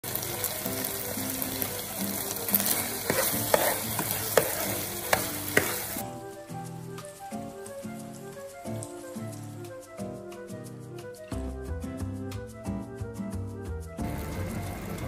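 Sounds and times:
meat sizzling in a frying pan: 0.0 - 9.8
spatula scraping a pan: 2.5 - 6.0.

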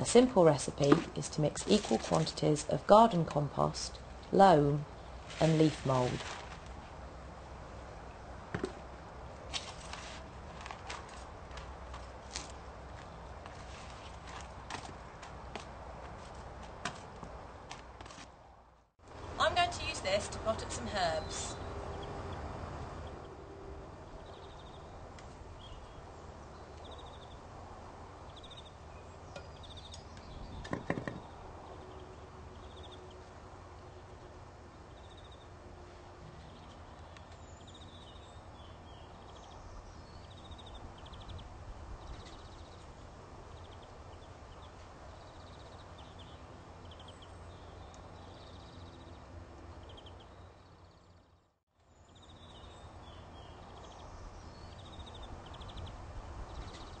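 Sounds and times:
small birds chirping: 19.5 - 23.4, 24.0 - 27.5, 28.2 - 34.0, 34.8 - 35.5, 36.4 - 57.0
sharp knock: 30.6 - 31.2.

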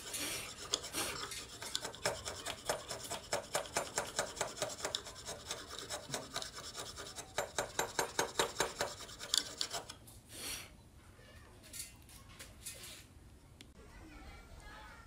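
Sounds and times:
chisel scraping wood: 0.0 - 10.0.

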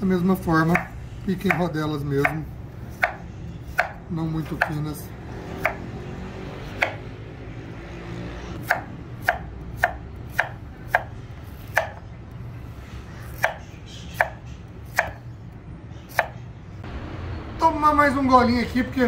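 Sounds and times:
knife chopping on wooden board: 0.7 - 4.8, 5.5 - 5.9, 6.6 - 7.1, 8.6 - 12.1, 13.3 - 15.2, 16.1 - 16.4.

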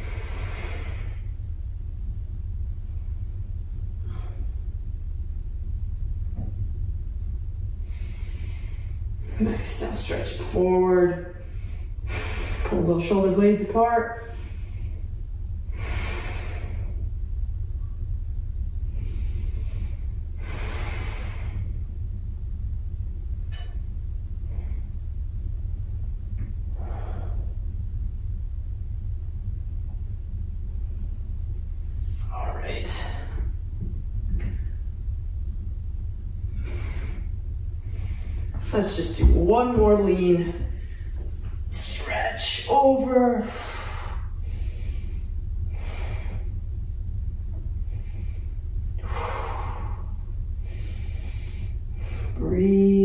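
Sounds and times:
person breathing: 0.0 - 1.4, 7.8 - 9.4, 15.7 - 17.0, 18.9 - 21.8, 26.7 - 27.7, 36.5 - 38.6, 43.5 - 46.6, 47.8 - 52.4
steady low hum: 0.0 - 53.0
steady low rumble: 0.0 - 53.0.

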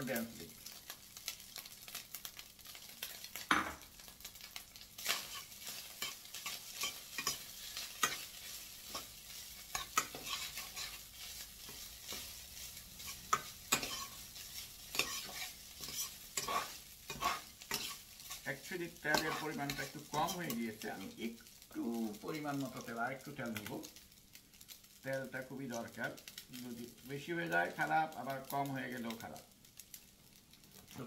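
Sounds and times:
rice sizzling in oil: 0.0 - 31.0
spatula scraping a pan: 5.0 - 21.2.

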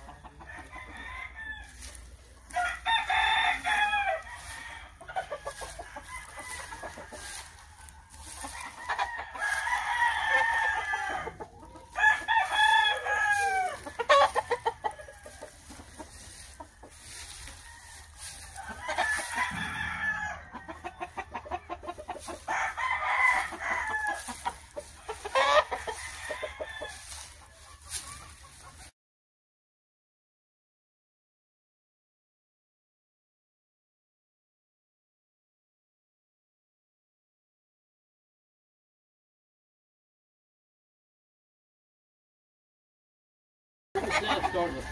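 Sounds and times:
roosters crowing: 0.0 - 28.6, 44.0 - 44.9
clucking: 13.7 - 17.5, 18.8 - 22.5, 23.2 - 26.6, 44.0 - 44.9.

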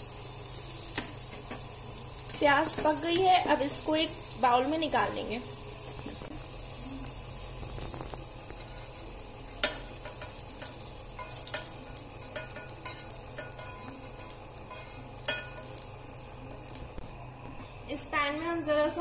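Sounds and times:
onions sizzling in oil: 0.0 - 18.1
spatula scraping and clinking metal: 9.6 - 15.8.

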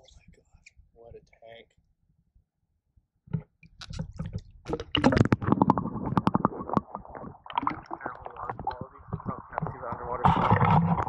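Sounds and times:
fish splashing in water: 4.1 - 11.0.

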